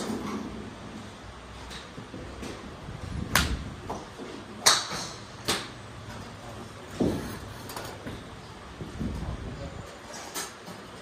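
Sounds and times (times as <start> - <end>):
golf clubs striking balls: 1.6 - 8.5.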